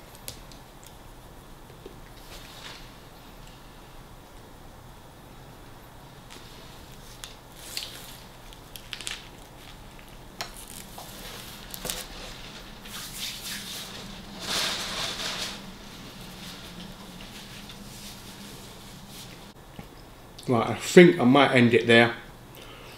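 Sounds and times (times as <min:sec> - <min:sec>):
paper wrapper rustling: 0:06.9 - 0:19.4.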